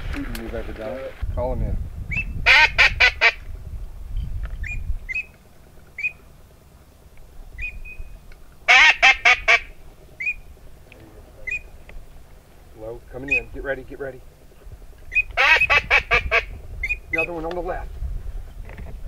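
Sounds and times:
wind rumble on microphone: 0:00.0 - 0:19.0
duck call high peeping: 0:02.4 - 0:03.4, 0:05.9 - 0:06.3, 0:08.6 - 0:10.5, 0:11.4 - 0:11.8, 0:13.2 - 0:13.6, 0:15.0 - 0:17.4.

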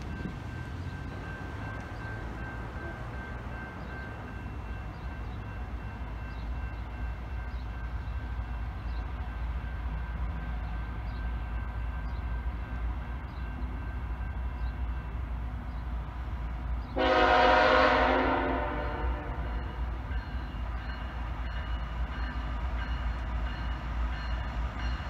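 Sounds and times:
train air horn chord: 0:17.0 - 0:19.8.

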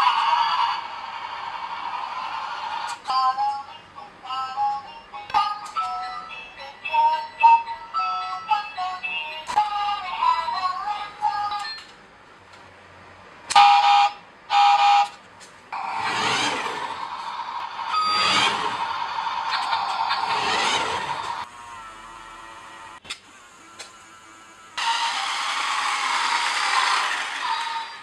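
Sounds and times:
toy truck electronic buzz: 0:15.8 - 0:28.0.

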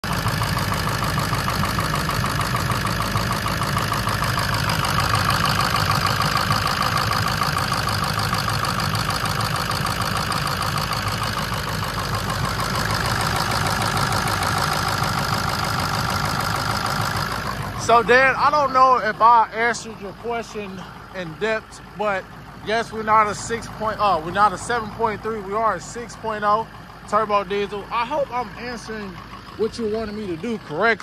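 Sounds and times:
diesel engine idling with clatter: 0:00.0 - 0:31.0.

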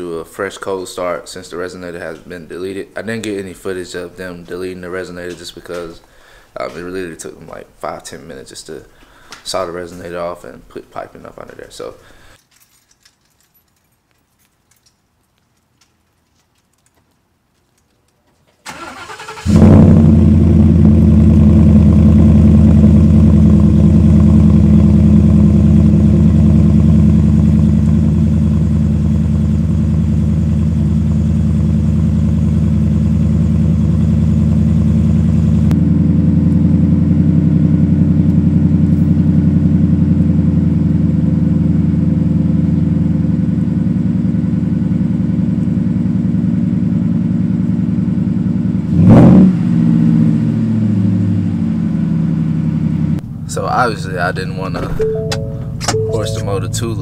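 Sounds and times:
engine cranking: 0:18.6 - 0:19.7.

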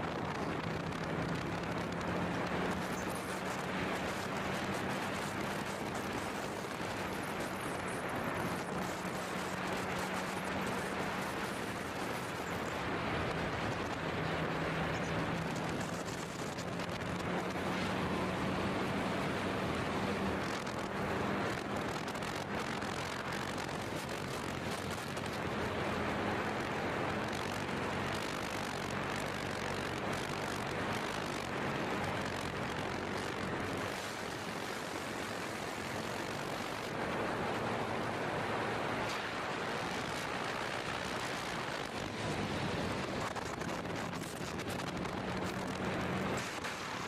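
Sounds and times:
motorcycle engine hum: 0:00.0 - 0:47.0
wind rushing over microphone: 0:00.0 - 0:47.0.

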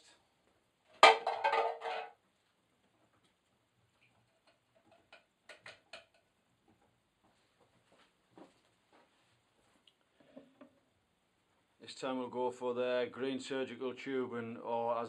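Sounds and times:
steel tins clattering: 0:01.0 - 0:02.2.

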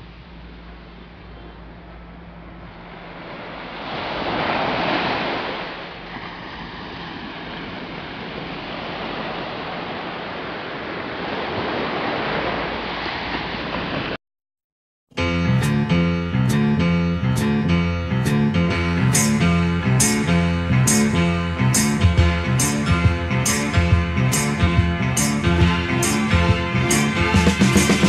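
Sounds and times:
sea waves breaking on shore: 0:02.4 - 0:14.2.

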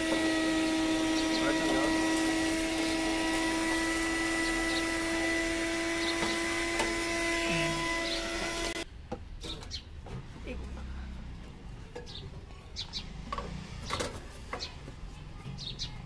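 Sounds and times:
electric power tool whining: 0:00.0 - 0:08.8.

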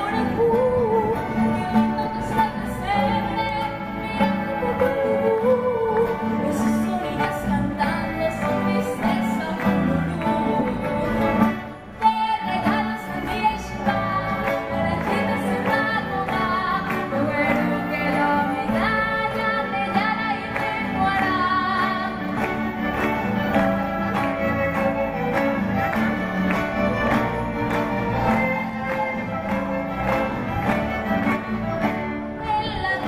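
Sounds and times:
woman singing: 0:00.0 - 0:25.5, 0:32.2 - 0:33.0
string orchestra playing: 0:00.0 - 0:33.0.

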